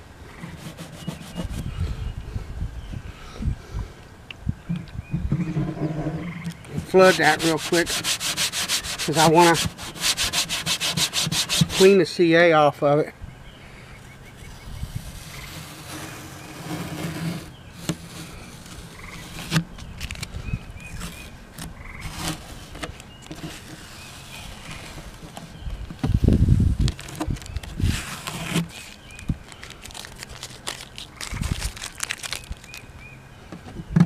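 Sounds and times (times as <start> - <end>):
rag rubbing on wood: 0.4 - 1.7, 5.3 - 12.0, 14.8 - 19.6
faint chirping calls: 13.2 - 16.6, 17.3 - 22.2
masking tape pulled away: 26.8 - 32.8.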